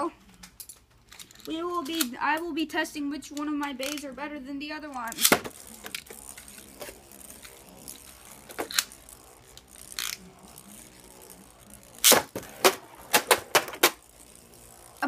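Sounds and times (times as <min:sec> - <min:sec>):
plastic toy parts clicking: 0:00.4 - 0:02.5, 0:03.2 - 0:04.2, 0:04.8 - 0:09.0, 0:09.6 - 0:10.2.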